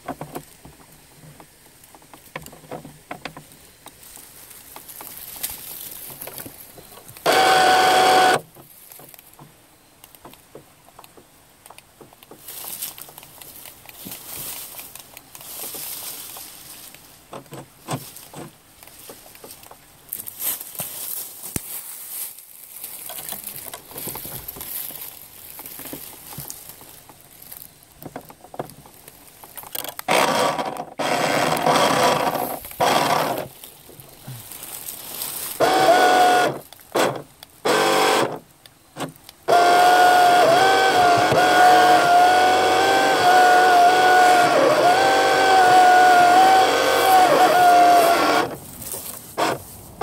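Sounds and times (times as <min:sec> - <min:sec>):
small electric motor whining: 0:07.2 - 0:08.4, 0:30.0 - 0:33.5, 0:35.6 - 0:38.4, 0:39.0 - 0:48.6, 0:49.3 - 0:49.6.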